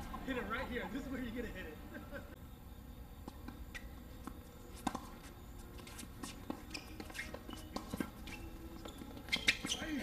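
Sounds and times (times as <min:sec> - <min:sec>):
court shoes squeaking: 0:03.2 - 0:10.0
tennis balls tapping: 0:03.2 - 0:10.0.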